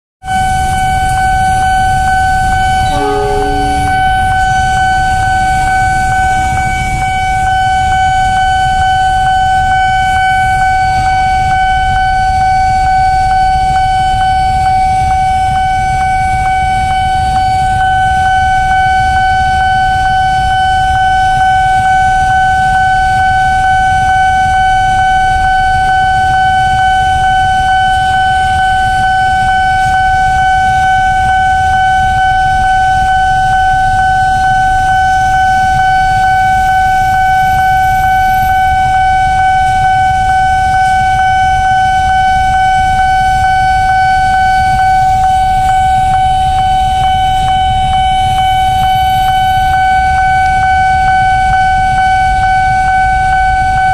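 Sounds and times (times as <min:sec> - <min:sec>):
level crossing alarm tone: 0:00.3 - 0:53.9
freight train rumbling past: 0:02.8 - 0:06.2.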